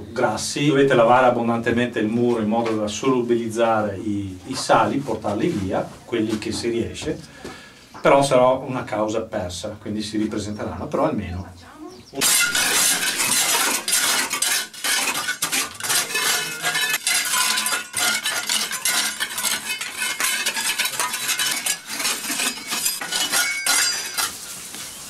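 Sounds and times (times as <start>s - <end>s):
hand tools scraping stone wall: 12.2s - 25.0s.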